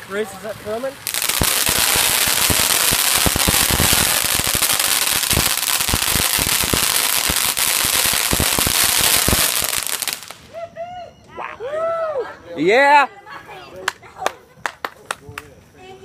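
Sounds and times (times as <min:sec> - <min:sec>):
firework hissing and crackling: 0:00.0 - 0:10.6.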